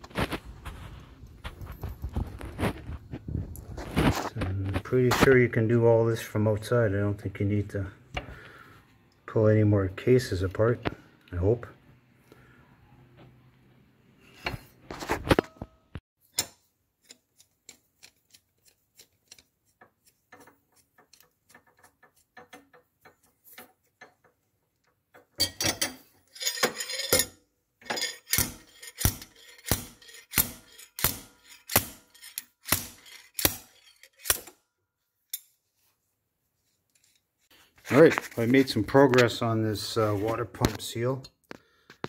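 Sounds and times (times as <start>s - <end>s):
screwdriver scraping metal: 16.4s - 24.1s, 25.4s - 34.5s.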